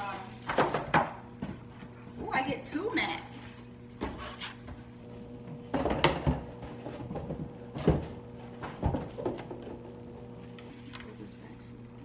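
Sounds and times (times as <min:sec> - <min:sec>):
plastic mats knocking and thudding: 0:05.7 - 0:09.8.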